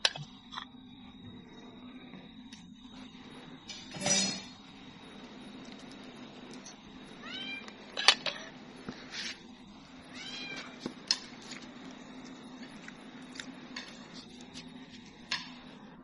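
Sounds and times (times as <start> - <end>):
cat meowing: 7.2 - 7.7, 10.1 - 10.8.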